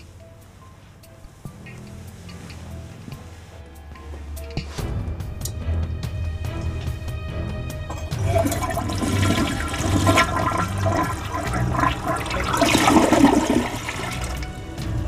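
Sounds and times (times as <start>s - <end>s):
toilet flushing: 7.9s - 15.0s.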